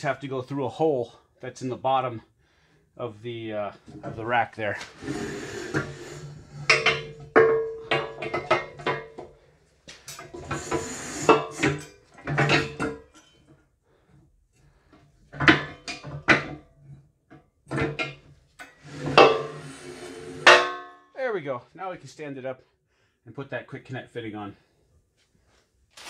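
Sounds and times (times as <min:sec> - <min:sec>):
steel parts clanking and knocking: 0:03.9 - 0:09.4, 0:10.1 - 0:13.6.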